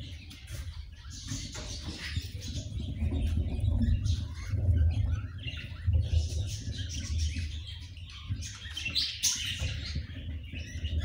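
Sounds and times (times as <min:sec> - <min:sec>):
low uneven rumbling: 0:00.0 - 0:08.9
budgerigars chirping: 0:00.0 - 0:11.0.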